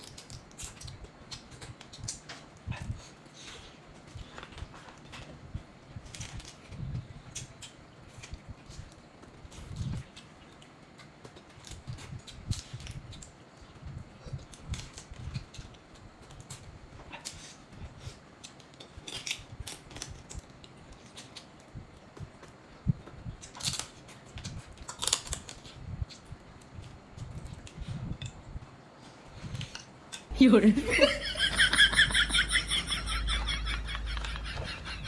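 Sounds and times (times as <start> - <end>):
crab shells cracking and crunching: 0.0 - 2.6, 6.0 - 13.4, 14.4 - 17.6, 18.2 - 22.6, 23.3 - 28.4.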